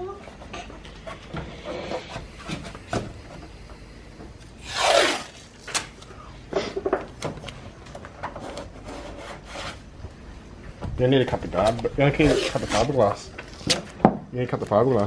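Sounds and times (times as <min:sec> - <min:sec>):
masking tape ripping: 0:04.6 - 0:06.0, 0:12.2 - 0:13.9.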